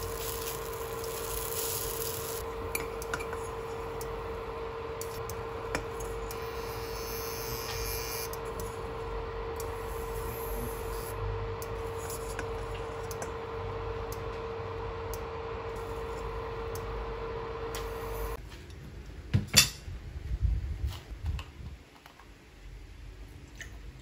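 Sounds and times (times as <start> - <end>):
pancake frying hiss: 0.0 - 2.4
induction cooker electrical hum: 0.0 - 21.6.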